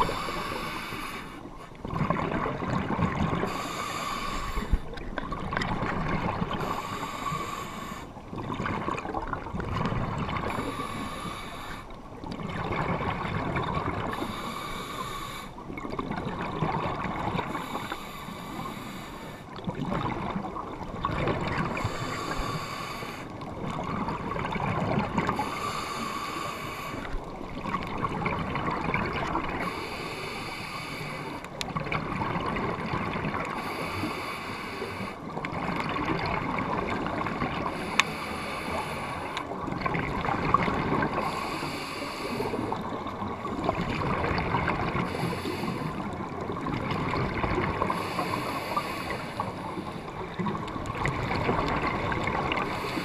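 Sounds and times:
diver breathing through regulator: 0.0s - 1.8s, 3.3s - 5.0s, 6.3s - 8.2s, 10.3s - 12.0s, 13.9s - 15.6s, 17.3s - 19.6s, 21.6s - 23.4s, 25.2s - 27.2s, 29.5s - 31.6s, 33.4s - 35.9s, 37.1s - 39.6s, 40.8s - 43.3s, 44.8s - 46.4s, 47.1s - 50.6s, 52.3s - 53.0s
rush of bubbles: 1.8s - 3.9s, 8.3s - 10.7s, 12.4s - 14.3s, 27.2s - 29.7s, 42.7s - 48.0s.

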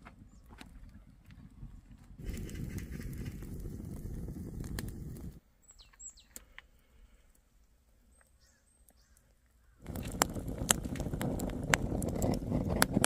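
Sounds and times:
wood fire rumbling and crackling: 0.0s - 5.4s, 9.8s - 13.0s
bird chirps: 5.6s - 6.4s, 8.1s - 9.8s.

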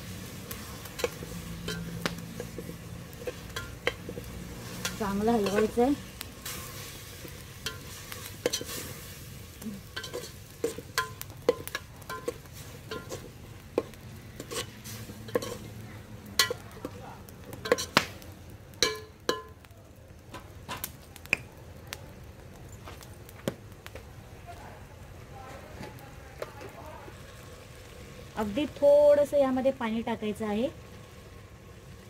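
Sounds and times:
meat sizzling: 0.0s - 25.2s, 26.0s - 32.0s
spoon scraping and clinking pot: 0.9s - 5.8s, 6.4s - 8.9s, 9.9s - 15.7s, 17.6s - 18.0s, 18.8s - 19.5s.

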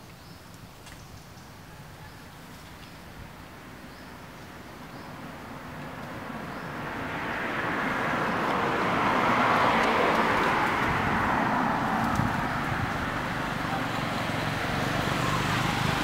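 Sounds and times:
motor vehicle passing: 5.1s - 16.0s.

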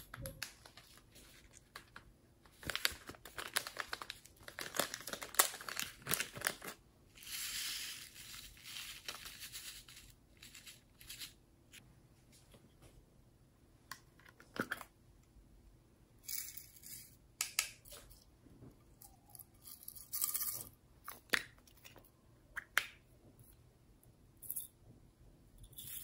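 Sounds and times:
rustling sequins and glitter: 5.5s - 11.8s.

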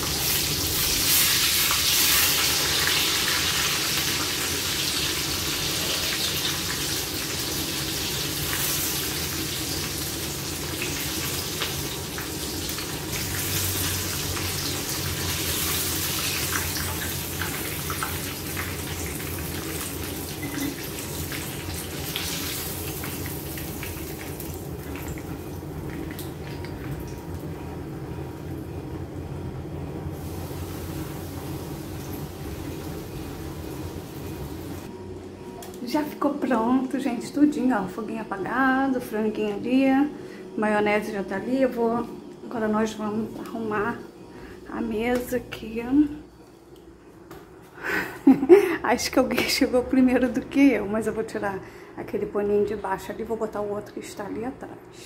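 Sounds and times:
chicken sizzling in hot oil: 0.0s - 26.6s, 30.2s - 34.9s.

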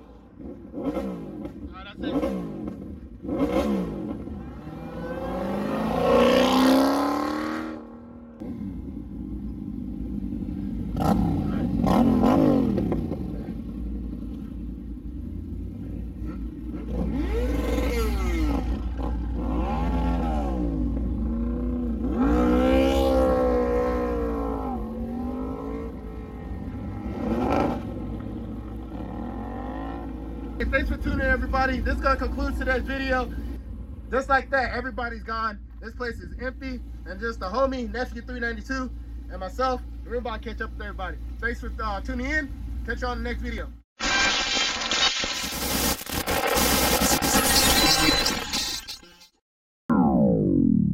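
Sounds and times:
car engines revving: 0.0s - 34.3s
engine idling rumble: 8.4s - 11.8s, 12.8s - 17.0s, 30.4s - 43.8s.

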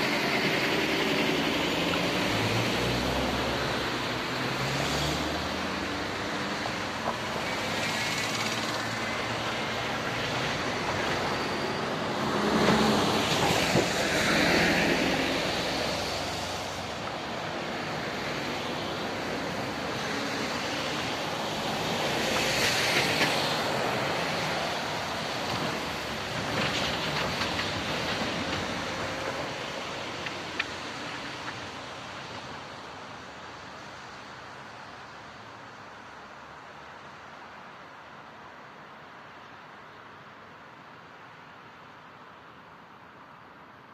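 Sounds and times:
vehicles passing: 0.0s - 43.9s
wheels knocking on rails: 25.4s - 29.3s.

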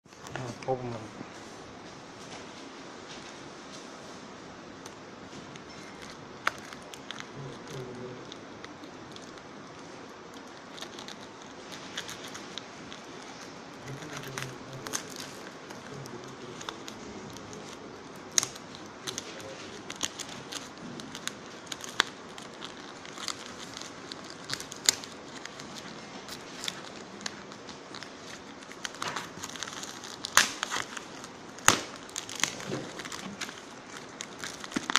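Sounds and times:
plastic wrap crinkling: 0.1s - 34.9s.

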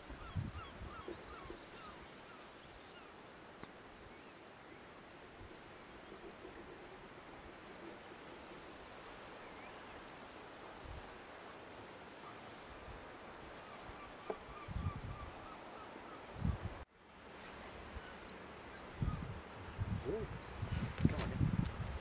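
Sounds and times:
sea: 0.0s - 22.0s
wind: 0.0s - 22.0s
faint seabird calls: 13.4s - 16.6s.

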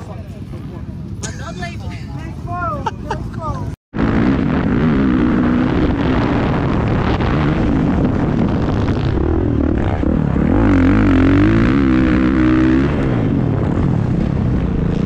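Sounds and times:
dirt bike engine revving: 4.0s - 15.0s.

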